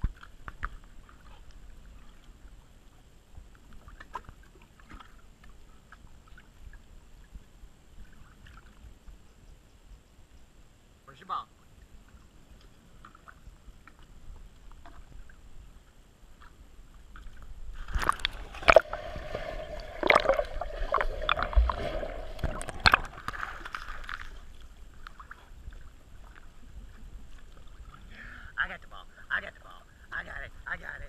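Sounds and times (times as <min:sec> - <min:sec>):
water lapping: 0:12.1 - 0:28.2.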